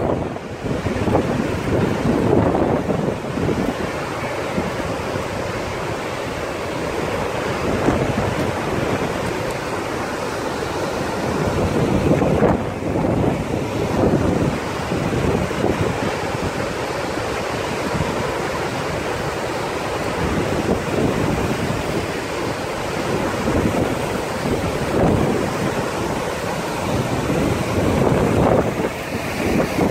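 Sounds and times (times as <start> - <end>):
waterfall roaring: 0.0 - 29.9
wind buffeting microphone: 0.0 - 29.9.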